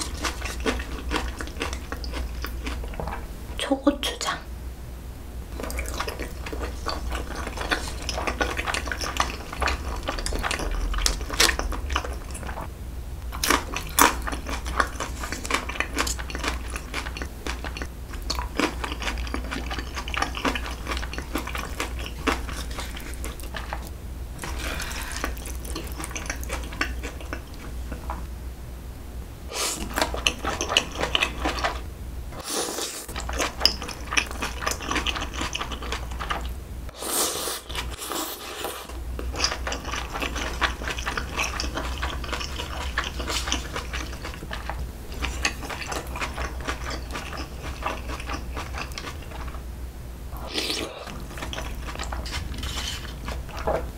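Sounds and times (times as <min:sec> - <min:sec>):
wet chewing: 0:00.0 - 0:03.2, 0:05.6 - 0:12.7, 0:13.3 - 0:28.3, 0:29.6 - 0:31.8, 0:32.4 - 0:36.6, 0:37.6 - 0:49.6, 0:50.4 - 0:53.9
noodles slurped: 0:05.6 - 0:12.7, 0:13.4 - 0:28.2, 0:32.4 - 0:49.6, 0:50.4 - 0:53.6.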